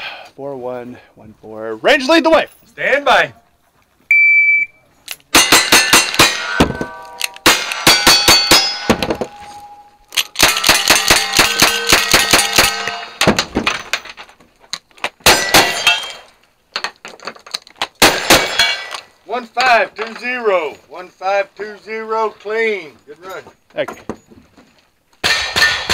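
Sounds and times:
shot timer beep: 4.1 - 4.8
steel targets ringing: 5.3 - 13.2, 15.3 - 16.3.

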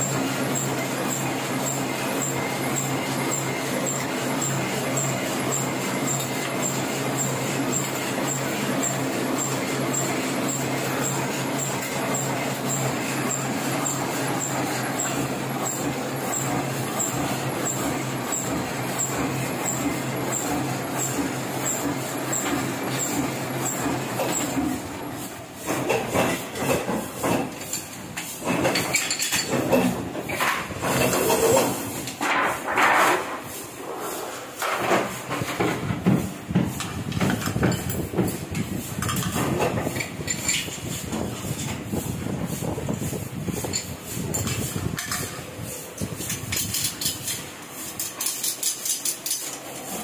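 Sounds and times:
printing press humming: 0.0 - 50.0
knocks and clatter of parts: 25.6 - 33.5, 34.6 - 41.9, 43.6 - 50.0.

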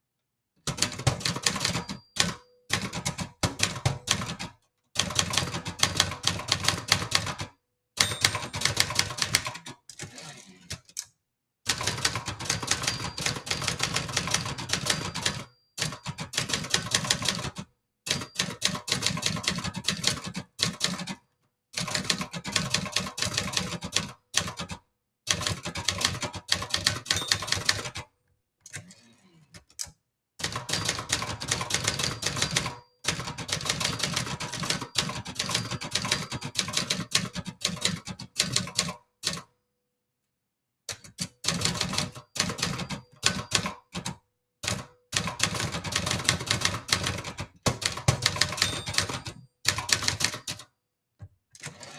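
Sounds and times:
typewriter typebar strikes: 44.7 - 50.6.

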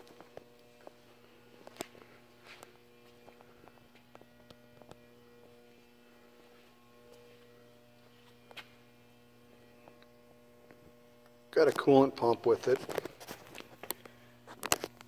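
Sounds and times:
low electrical mains hum: 0.0 - 15.0.

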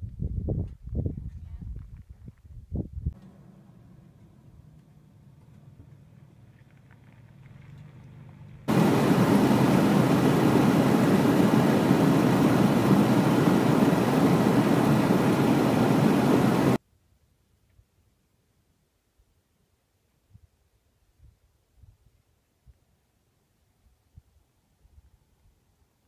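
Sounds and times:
car road and wind noise: 2.8 - 16.8.

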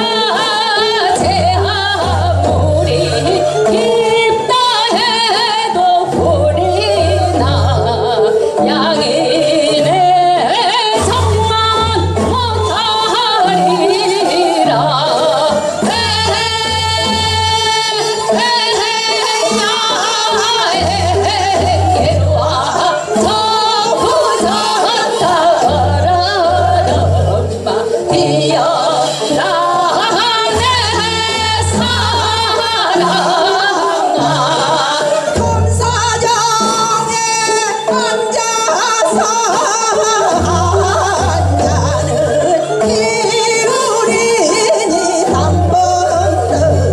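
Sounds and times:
instrumental accompaniment: 0.0 - 46.9
women singing folk song duet: 0.0 - 46.9.

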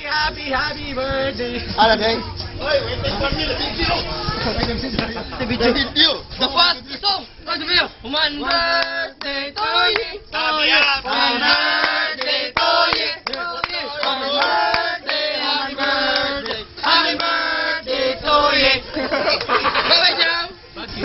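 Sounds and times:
group of voices singing: 8.1 - 21.0
hand clapping: 8.7 - 10.1, 11.8 - 15.2.

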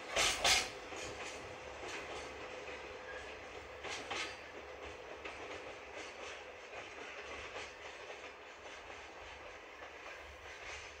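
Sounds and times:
train wheels rumbling on rail: 0.0 - 11.0
clicks over rail joints: 3.6 - 11.0.

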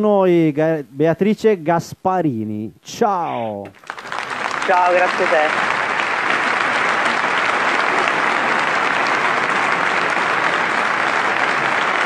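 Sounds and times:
crowd applause: 3.7 - 12.0.

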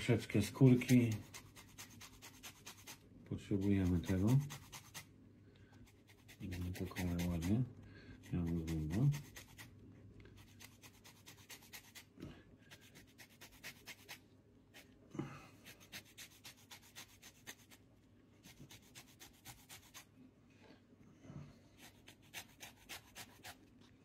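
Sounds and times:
lemon rasping on grater: 0.4 - 5.0, 6.0 - 9.7, 21.8 - 23.6.

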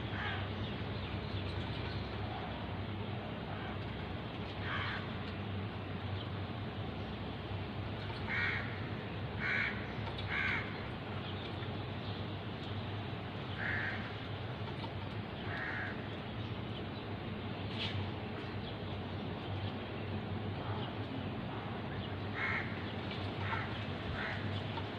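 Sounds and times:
steady low hum: 0.0 - 24.9
crow cawing: 0.1 - 0.5, 4.6 - 5.1, 8.2 - 10.8, 13.6 - 14.2, 15.4 - 16.0, 22.3 - 22.8, 23.4 - 24.5.

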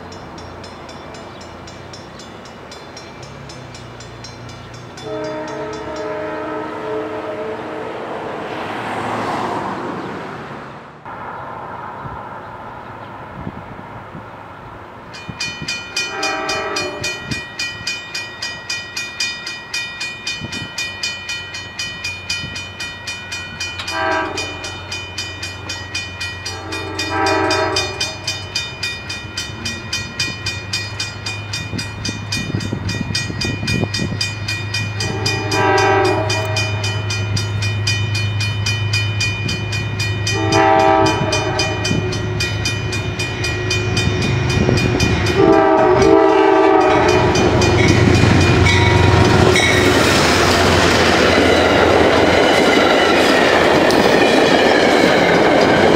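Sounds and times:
crossing warning bells ringing: 0.0 - 9.5, 14.8 - 55.9
train horn chord blasts: 5.0 - 8.3, 15.9 - 17.4, 23.8 - 25.1, 26.4 - 28.5, 35.0 - 37.5, 40.0 - 50.0
locomotive engine rumble: 20.4 - 55.9.

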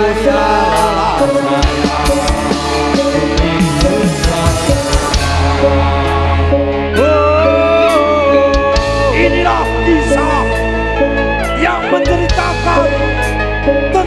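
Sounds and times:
drum strokes sliding in pitch: 1.5 - 7.4.

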